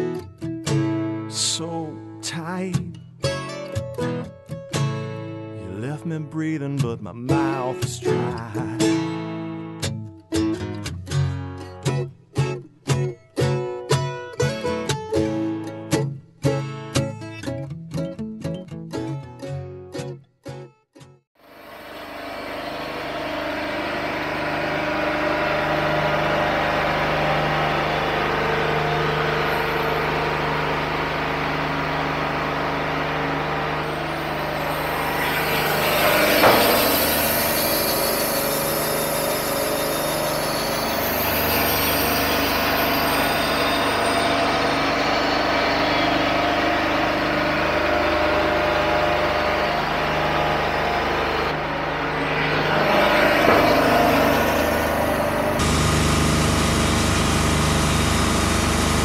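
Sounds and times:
bandsaw mill running: 0:21.4 - 0:59.0
brief loud noise: 0:21.4 - 0:59.0.

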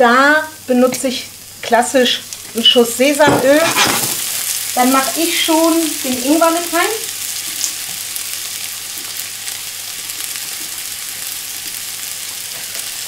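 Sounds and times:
shallots sizzling in oil: 0:00.0 - 0:13.0.

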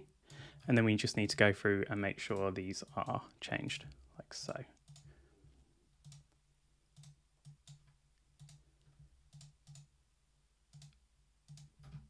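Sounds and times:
computer mouse clicks: 0:04.8 - 0:05.1, 0:06.0 - 0:09.9, 0:10.7 - 0:12.0.

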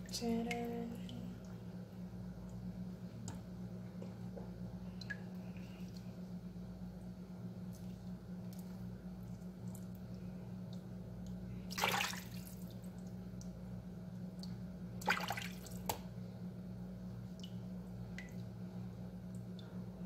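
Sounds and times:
steady low hum: 0:00.0 - 0:20.0
water dripping: 0:04.9 - 0:06.1, 0:07.7 - 0:16.0, 0:17.3 - 0:18.6
water splashing in a basin: 0:11.7 - 0:13.5, 0:14.4 - 0:16.1.

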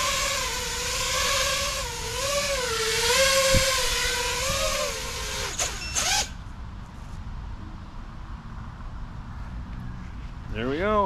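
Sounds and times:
drone motors whining: 0:00.0 - 0:06.4.

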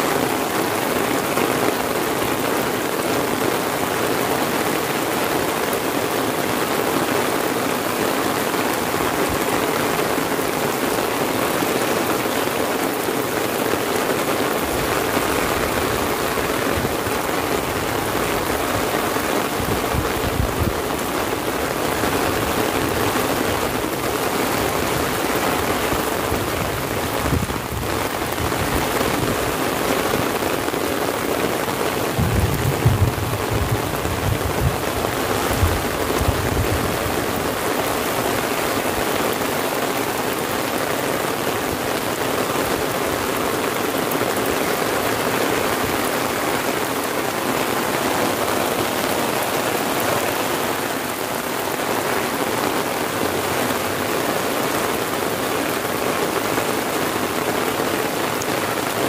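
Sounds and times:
heavy rain on umbrella: 0:00.0 - 0:59.0
rain hissing on road: 0:00.0 - 0:59.0
low rumbling: 0:32.2 - 0:34.9.

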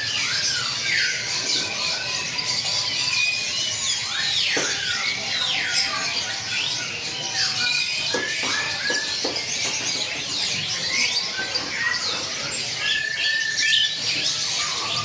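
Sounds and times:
small birds chirping and whistling: 0:00.0 - 0:15.0.

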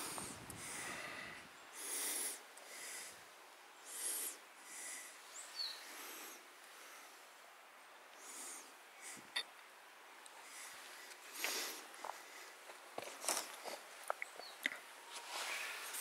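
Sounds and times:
person breathing heavily: 0:00.0 - 0:07.4, 0:08.2 - 0:09.4, 0:10.4 - 0:12.7.

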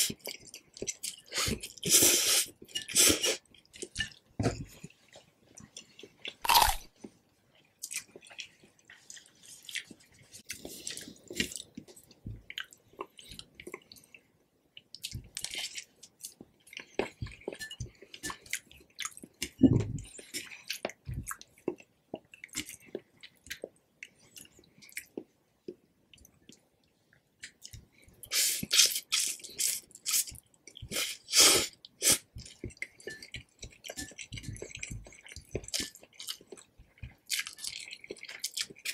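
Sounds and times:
person chewing noodles: 0:00.0 - 0:26.6, 0:27.4 - 0:38.9
wet sticky mouth sounds: 0:06.3 - 0:06.9.

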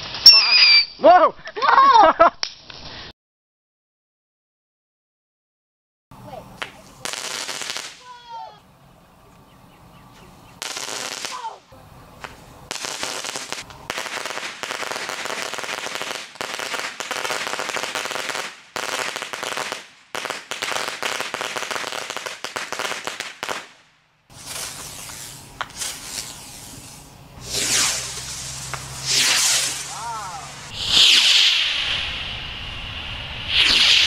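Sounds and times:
fireworks crackling: 0:06.4 - 0:08.5, 0:10.6 - 0:34.0
loud hissing rush: 0:24.3 - 0:34.0.

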